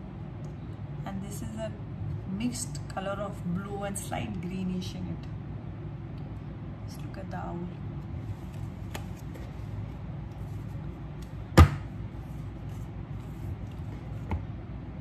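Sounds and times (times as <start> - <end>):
deck of cards handled: 8.2 - 11.5
loud sharp knock: 11.6 - 11.9.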